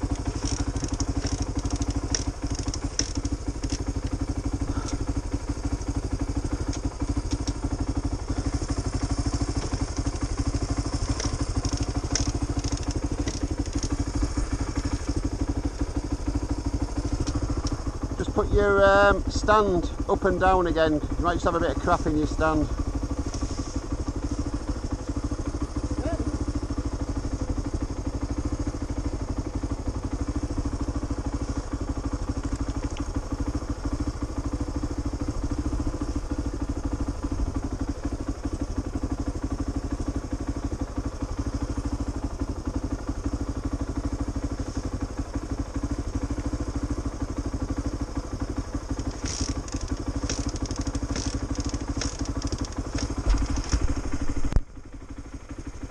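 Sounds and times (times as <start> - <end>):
motorcycle engine idling: 0.0 - 55.9
sharp clicks and clatter: 0.1 - 5.0, 6.6 - 7.7, 9.4 - 15.8, 48.8 - 54.7.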